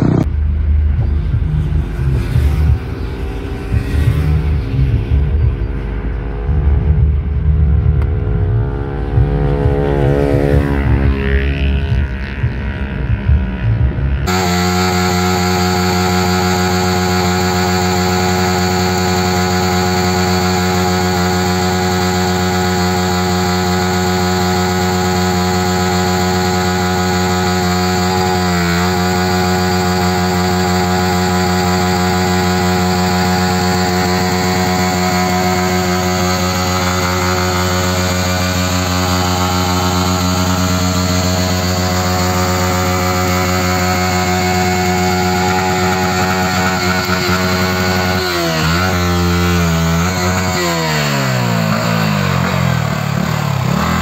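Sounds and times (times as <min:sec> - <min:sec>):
motorcycle engine high revs: 0:00.0 - 0:00.4, 0:01.2 - 0:54.0
tyre spinning on pavement: 0:14.3 - 0:51.8.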